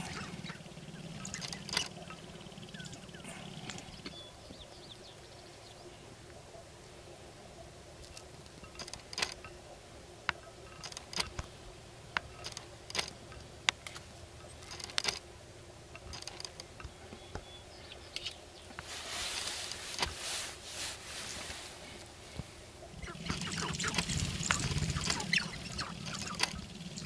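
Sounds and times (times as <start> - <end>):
sharp clicks and pops: 14.6 - 15.2, 23.0 - 27.0
dry rattling buzz: 23.0 - 27.0.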